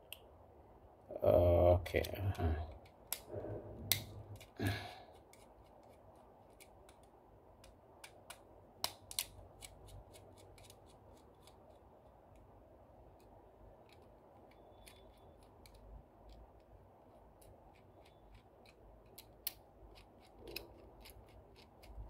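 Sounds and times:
screwdriver clicks and scrapes: 5.1s - 12.4s, 13.2s - 22.0s.

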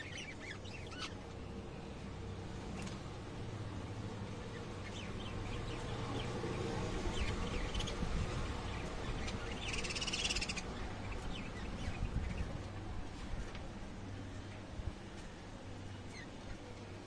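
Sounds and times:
lovebirds chirping: 0.0s - 3.0s, 3.8s - 13.0s
low steady hum: 0.0s - 17.0s.

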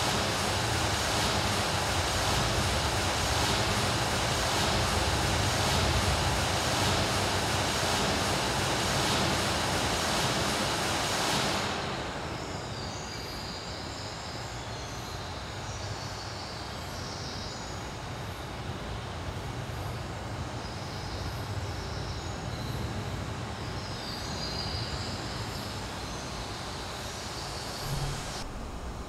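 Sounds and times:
steady low rumble: 0.0s - 12.4s, 27.6s - 29.0s
loud rushing noise: 0.0s - 13.1s, 27.3s - 29.0s
faint hiss: 0.0s - 29.0s.

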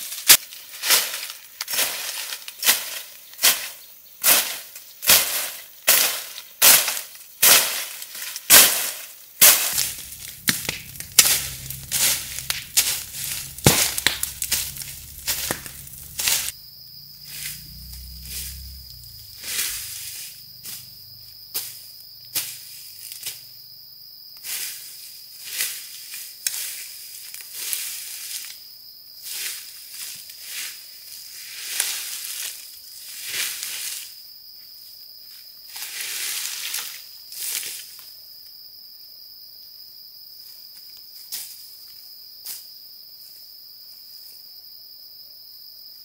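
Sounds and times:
high insect buzz: 9.4s - 25.8s
wood being chopped: 9.5s - 16.5s.

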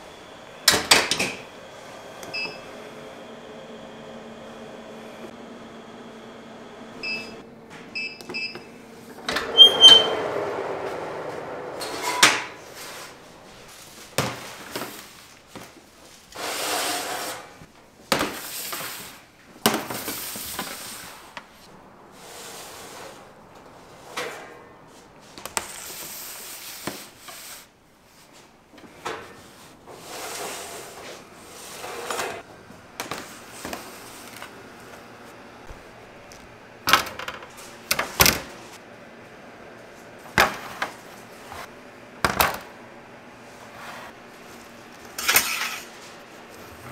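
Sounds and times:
rustling and scraping: 10.1s - 17.6s.

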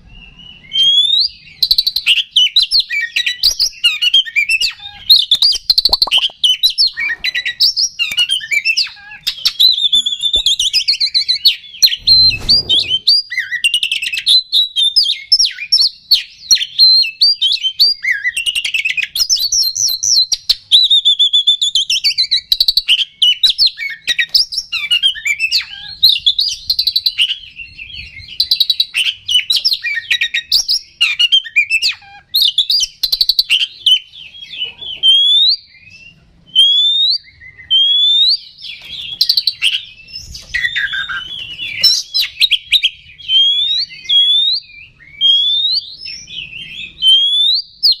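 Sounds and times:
bird singing whistles and chatter: 0.0s - 48.0s.

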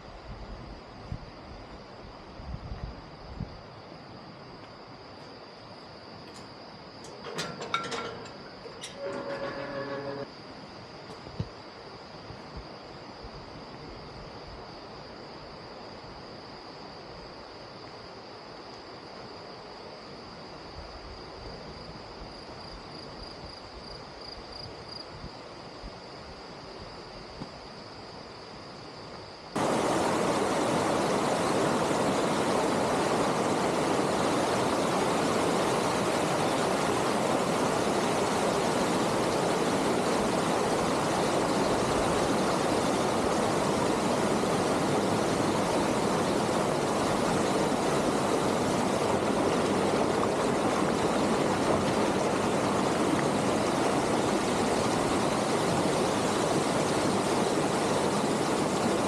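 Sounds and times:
steady rushing noise: 29.6s - 59.0s.

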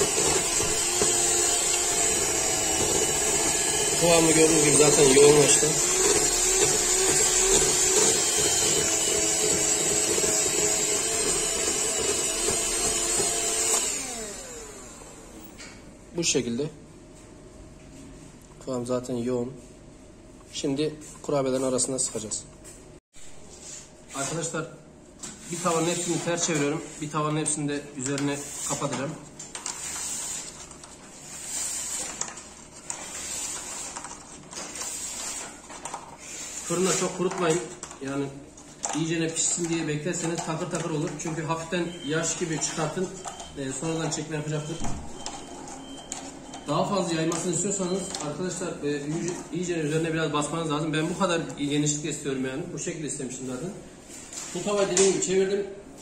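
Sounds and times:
electric hand mixer running: 0.0s - 15.5s.

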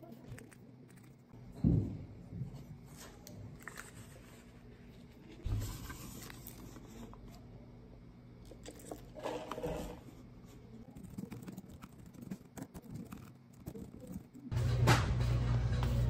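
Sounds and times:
paper rustling: 2.9s - 7.4s.

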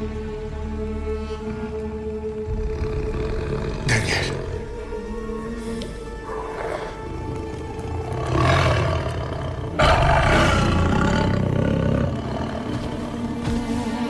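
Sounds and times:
film music: 0.0s - 14.0s
lion roaring: 2.4s - 4.7s, 6.2s - 13.2s.

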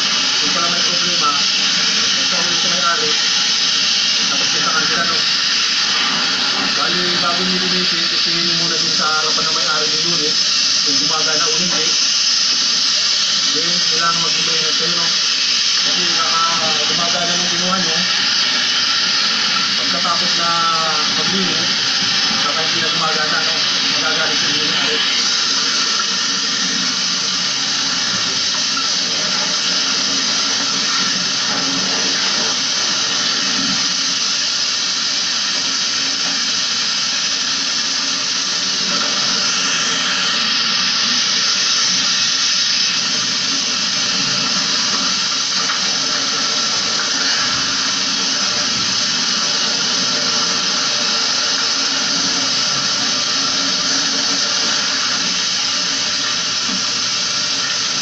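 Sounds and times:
hose spraying water on plastic: 0.0s - 58.0s.

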